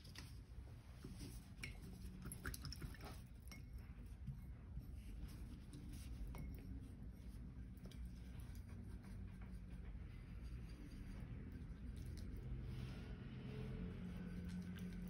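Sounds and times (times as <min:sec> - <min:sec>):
low steady hum: 0:00.0 - 0:15.0
paintbrush clinking against glass jar: 0:06.0 - 0:07.3.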